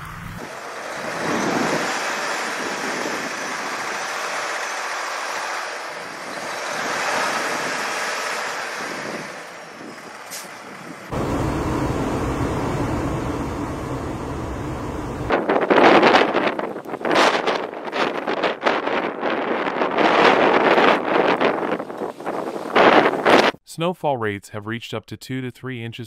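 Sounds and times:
wind buffeting microphone: 8.7s - 23.6s
steady rushing noise: 11.1s - 15.6s.

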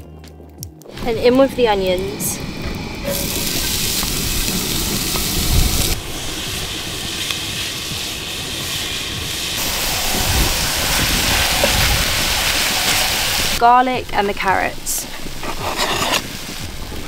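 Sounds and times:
onions sizzling in hot oil: 3.1s - 13.6s, 15.2s - 17.0s.

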